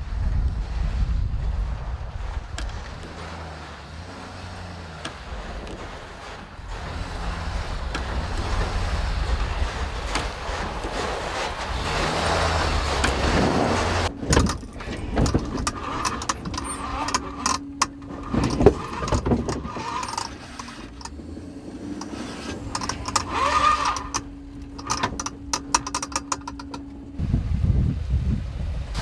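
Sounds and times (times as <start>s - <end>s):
steady hum: 0.0s - 29.0s
truck cab rattling: 0.2s - 27.2s
sharp clicks and knocks: 7.8s - 21.2s, 21.9s - 27.2s
keys jangling: 14.3s - 21.0s.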